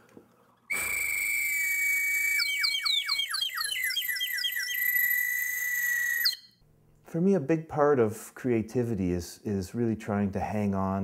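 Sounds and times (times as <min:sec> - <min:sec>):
high bird call whistle: 0:00.7 - 0:06.6.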